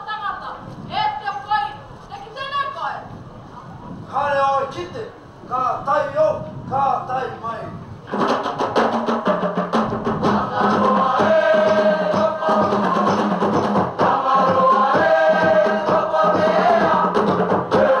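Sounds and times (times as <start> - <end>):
steady drum beat: 8.1 - 18.0
chorus singing together: 10.0 - 18.0.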